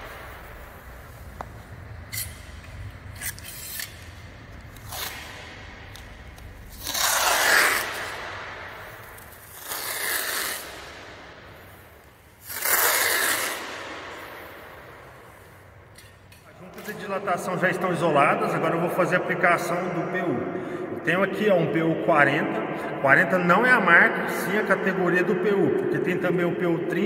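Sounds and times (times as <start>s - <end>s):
masking tape ripping off roll: 3.0s - 11.0s, 12.4s - 13.9s.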